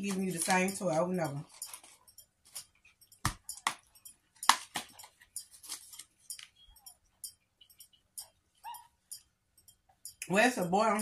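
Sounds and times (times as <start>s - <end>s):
plastic wrapper crinkling: 4.7s - 6.5s.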